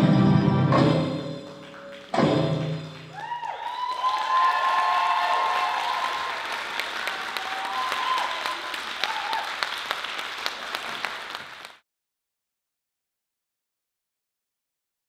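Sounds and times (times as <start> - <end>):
audience applauding: 1.4 - 11.8
cheering whoops: 3.0 - 9.8.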